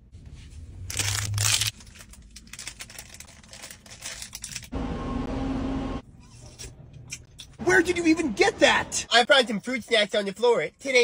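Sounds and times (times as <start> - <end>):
plastic pouch crinkling and tearing: 0.9 - 4.7.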